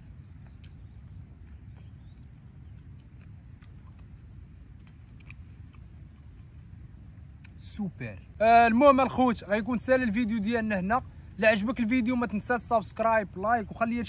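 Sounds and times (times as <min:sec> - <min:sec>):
eating clicks and smacks: 0:00.0 - 0:07.6
low outdoor rumble: 0:00.0 - 0:14.0.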